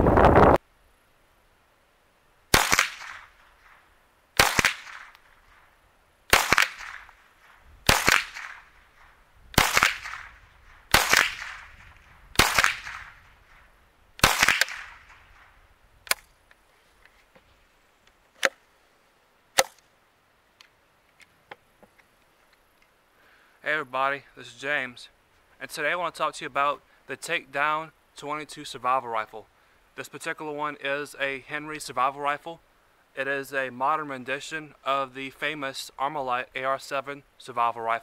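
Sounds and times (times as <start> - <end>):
rifle shots with echo: 2.5 - 3.8, 4.4 - 5.7, 6.3 - 13.6, 14.2 - 16.2
sharp clicks: 14.2 - 16.6.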